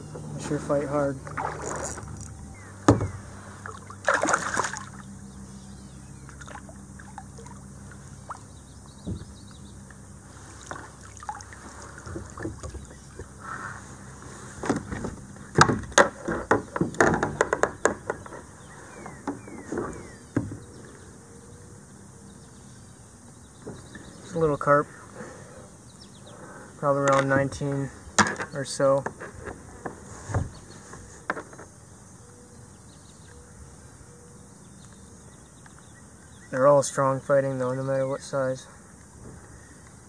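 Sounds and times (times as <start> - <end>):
fish splashing: 1.2 - 2.3, 3.4 - 5.1, 6.3 - 8.5, 10.6 - 12.9
knocks on kayak: 2.8 - 3.2, 9.0 - 9.3, 14.6 - 18.3.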